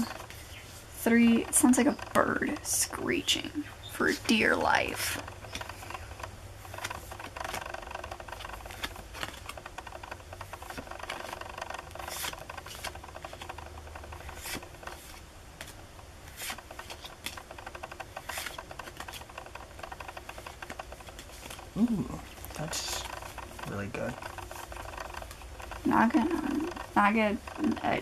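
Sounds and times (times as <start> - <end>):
low steady hum: 0.0 - 28.0
cards sliding and flipping: 8.5 - 9.6, 10.7 - 13.6, 14.2 - 17.4, 18.2 - 19.2, 20.3 - 21.6.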